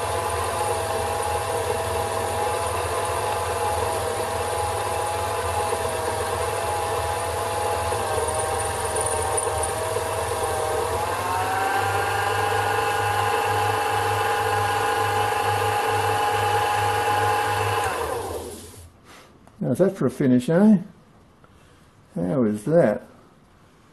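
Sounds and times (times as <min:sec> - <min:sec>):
lathe motor whining: 0:00.0 - 0:18.9.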